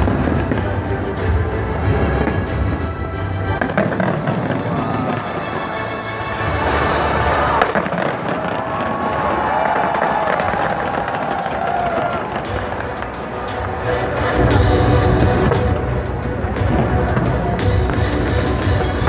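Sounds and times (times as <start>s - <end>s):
fireworks bursting and crackling: 0.0s - 19.0s
music: 0.0s - 19.0s.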